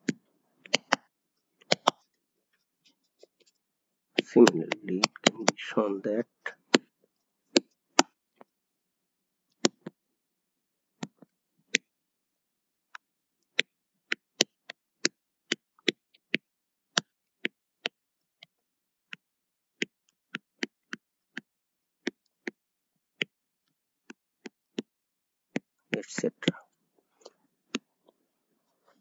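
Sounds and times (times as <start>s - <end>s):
stylus clicking on tablet: 0.0s - 2.2s, 4.2s - 5.7s.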